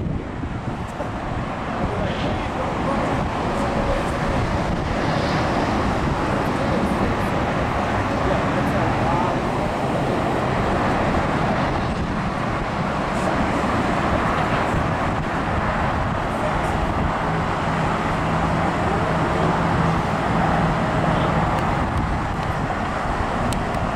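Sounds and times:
highway traffic rush: 0.0 - 23.9
low engine hum: 0.0 - 23.9.

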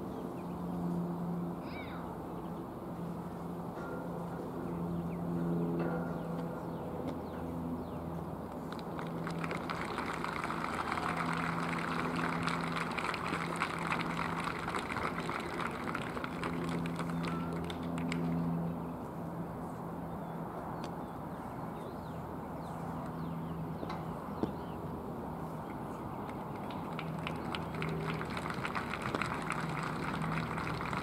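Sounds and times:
steady low hum: 0.0 - 31.0
small crowd clapping: 8.6 - 18.6, 26.2 - 31.0.

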